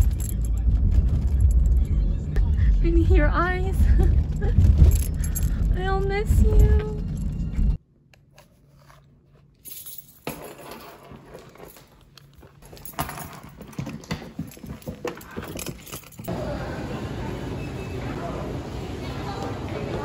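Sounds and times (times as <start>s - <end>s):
suitcase clicks and rattles: 10.2s - 16.3s.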